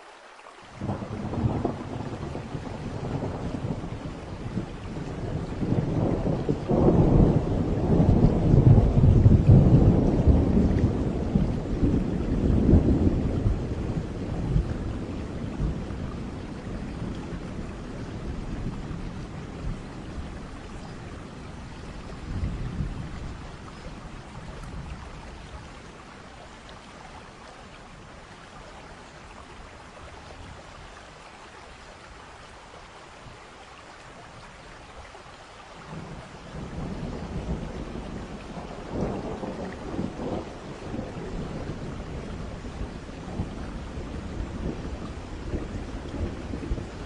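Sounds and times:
thunder rumbling: 0.8 - 26.3, 35.9 - 47.0.

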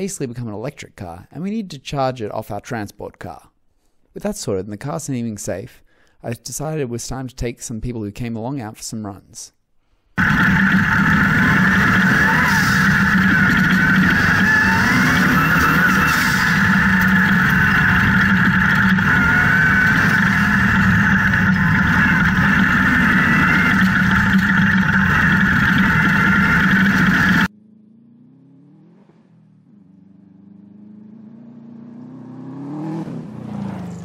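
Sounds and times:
buggy approaching: 10.2 - 27.5
buggy engine drone: 10.2 - 34.0.

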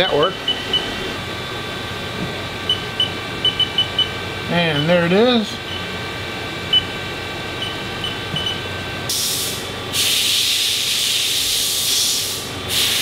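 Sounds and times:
milling machine hum: 0.0 - 11.8
bursts of hissing air: 9.1 - 13.0.

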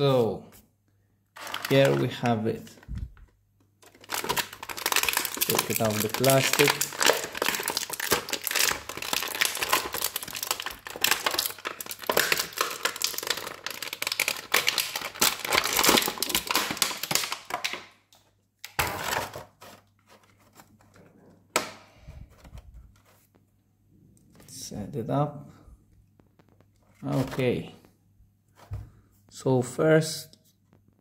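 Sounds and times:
plastic packaging crinkling: 1.4 - 18.0.

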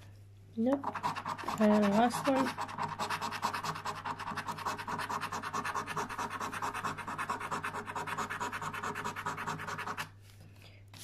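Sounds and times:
coin scraping scratchcard: 0.8 - 10.1.

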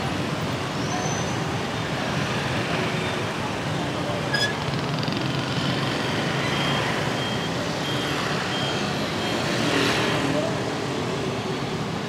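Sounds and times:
street traffic: 0.0 - 12.0
vehicle warning beeper: 6.1 - 9.6.

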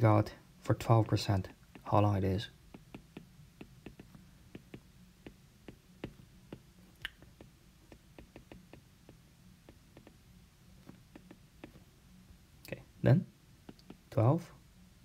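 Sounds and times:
stylus tapping on glass screen: 1.7 - 2.0, 2.7 - 10.2, 10.8 - 11.8, 13.7 - 14.2.

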